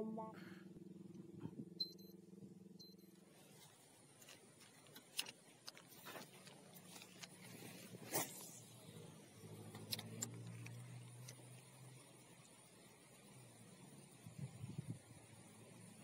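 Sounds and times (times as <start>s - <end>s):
faint low engine hum: 0.0s - 16.0s
rustling noise: 3.3s - 8.6s.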